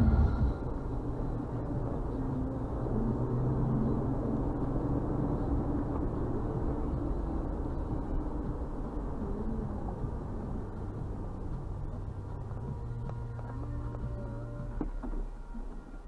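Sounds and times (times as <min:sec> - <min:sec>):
car engine and road noise: 0:00.0 - 0:16.0.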